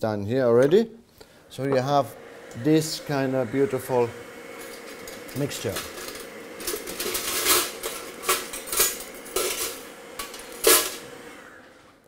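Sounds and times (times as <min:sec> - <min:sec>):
metal utensils clattering: 0:04.6 - 0:11.1.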